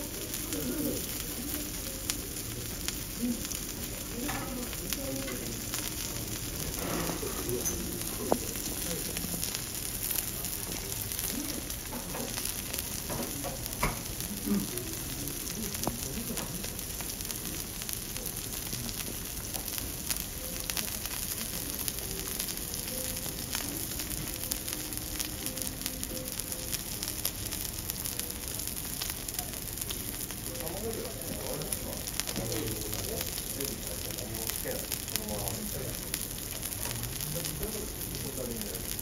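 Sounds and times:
steak sizzling on griddle: 0:00.0 - 0:39.0.

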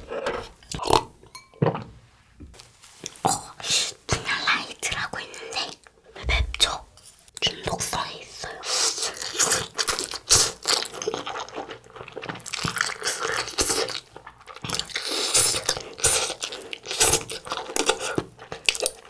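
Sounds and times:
slurping and chewing noodles: 0:08.4 - 0:19.0.

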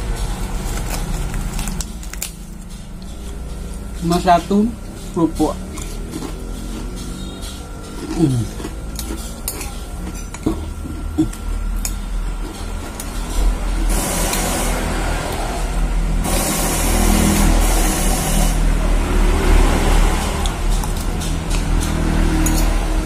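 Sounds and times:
traffic engine rumble: 0:00.0 - 0:23.0
engine and tyre noise rush: 0:02.5 - 0:09.4, 0:12.0 - 0:23.0.

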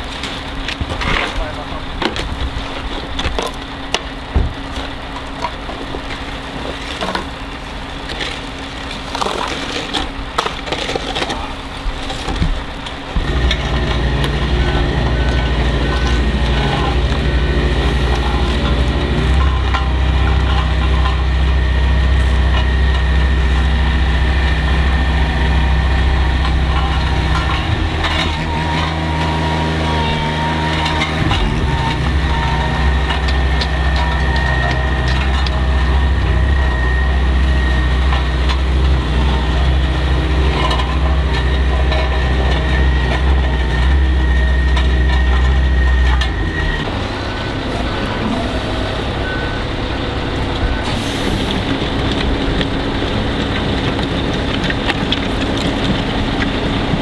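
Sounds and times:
truck diesel engine running: 0:11.4 - 0:57.0
thin high whine: 0:13.2 - 0:51.8.

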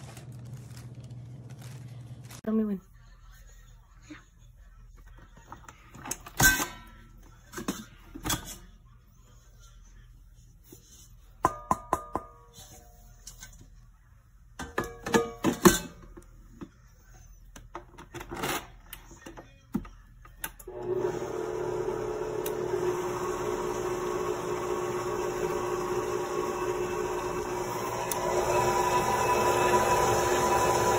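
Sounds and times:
metal clanks of mixer parts: 0:06.0 - 0:06.9, 0:14.6 - 0:16.2
stand mixer motor humming: 0:20.7 - 0:30.9.

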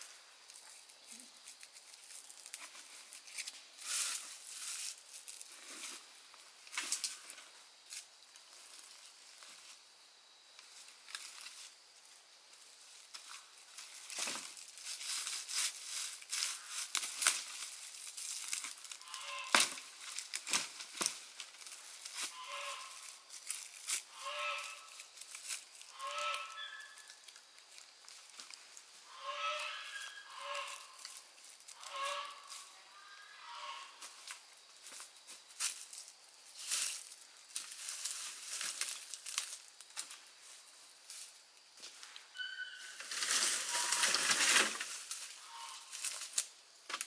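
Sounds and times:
crackles and snaps: 0:00.4 - 0:04.0, 0:13.1 - 0:22.3, 0:45.9 - 0:47.0
farm animal calls: 0:19.0 - 0:19.6, 0:22.3 - 0:23.1, 0:24.1 - 0:25.0, 0:25.9 - 0:27.2, 0:29.0 - 0:31.0, 0:31.8 - 0:34.0, 0:42.3 - 0:43.0, 0:43.6 - 0:44.2, 0:45.4 - 0:46.0.

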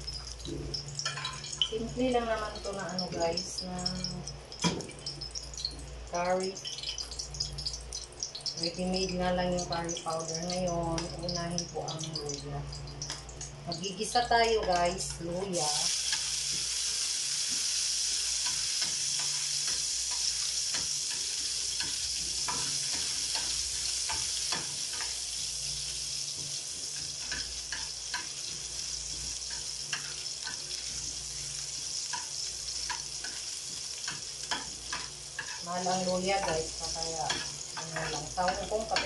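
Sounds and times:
ginger sizzling in hot oil: 0:00.0 - 0:39.0
spoon stirring in pan: 0:00.1 - 0:01.8, 0:18.3 - 0:25.2, 0:26.3 - 0:39.0.

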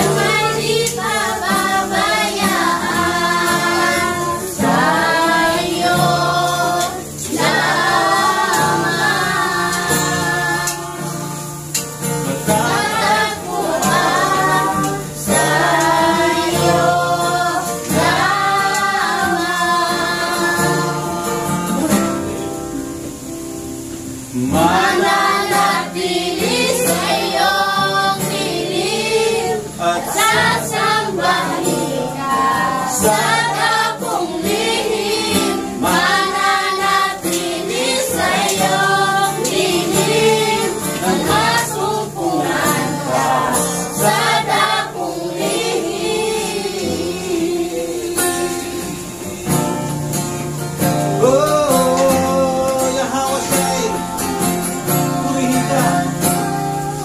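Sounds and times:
congregation singing worship song: 0:00.0 - 0:57.0
instrumental accompaniment: 0:00.0 - 0:57.0
man singing into microphone: 0:24.3 - 0:25.2, 0:39.4 - 0:44.2, 0:51.2 - 0:57.0.

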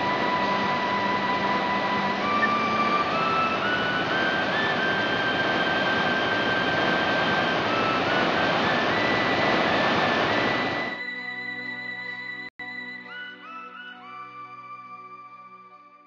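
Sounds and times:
ocean surf breaking on beach: 0:00.0 - 0:11.0
soft sustained music notes: 0:00.0 - 0:16.0.

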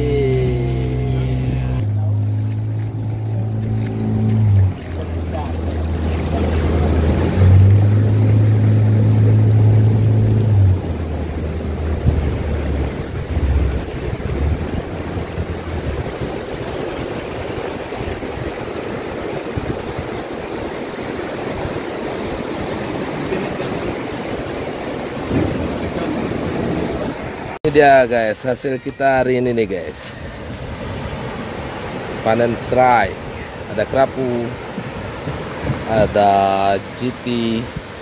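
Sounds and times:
boat motor running: 0:00.0 - 0:27.6, 0:30.4 - 0:38.0
surf washing around boat: 0:00.0 - 0:38.0
wind on microphone: 0:02.9 - 0:27.6.

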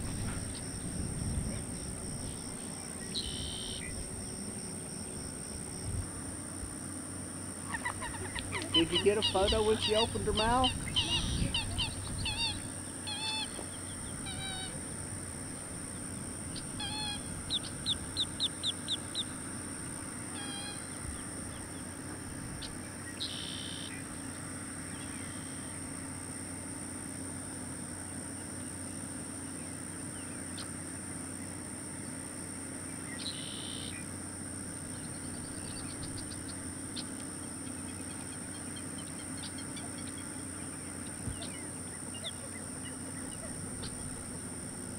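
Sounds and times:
alligator hatchlings chirping: 0:07.7 - 0:22.0, 0:34.9 - 0:44.9.

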